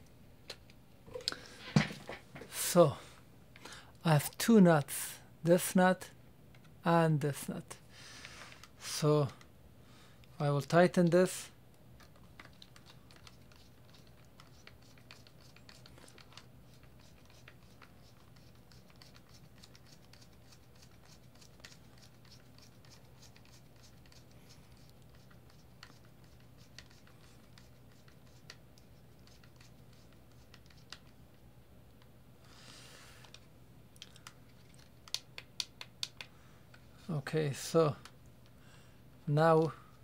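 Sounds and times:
screwdriver clicking and scratching: 12.0s - 31.2s.

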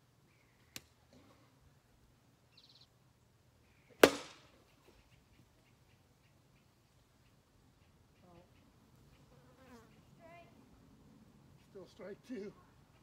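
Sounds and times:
plastic bat hitting ball: 4.0s - 4.5s.

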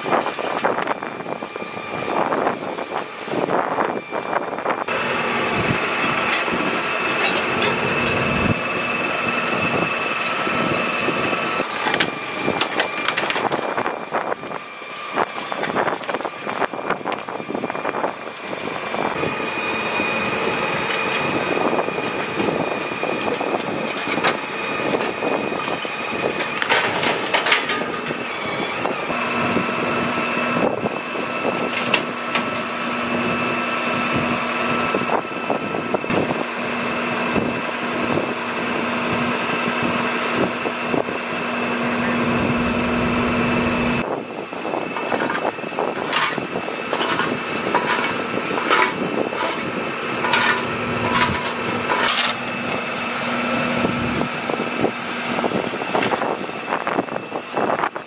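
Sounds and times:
truck engine idling: 0.4s - 58.0s
debris scraping on pavement: 10.8s - 19.3s, 20.3s - 28.6s, 44.9s - 57.7s.

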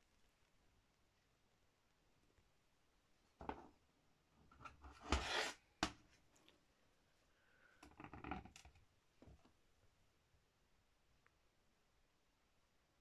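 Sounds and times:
plastic hubcap scraping on floor: 4.6s - 5.6s.

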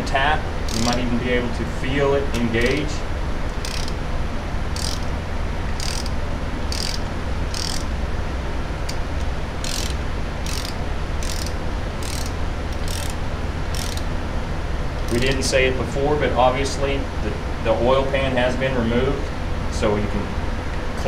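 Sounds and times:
steady low hum: 0.0s - 21.0s
ratchet wrench clicking: 0.7s - 1.0s, 2.3s - 2.9s, 3.6s - 4.0s, 4.7s - 5.1s, 5.7s - 7.9s, 9.6s - 14.1s, 15.0s - 15.4s.

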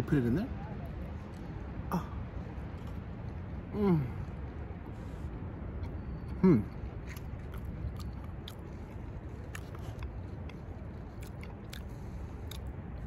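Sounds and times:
low background noise: 0.0s - 13.0s
person chewing wetly: 2.7s - 3.1s, 5.8s - 13.0s.

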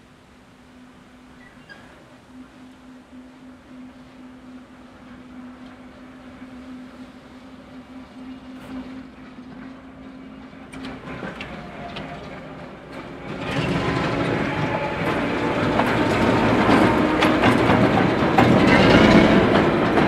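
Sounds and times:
diesel locomotive engine hum: 0.0s - 20.0s
wheels clicking over rail joints: 8.7s - 20.0s.

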